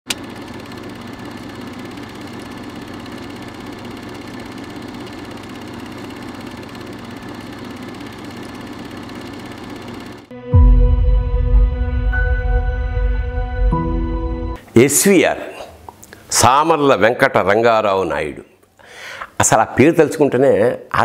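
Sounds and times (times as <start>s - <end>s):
film projector whirring: 0.1s - 10.3s
music: 10.3s - 14.6s.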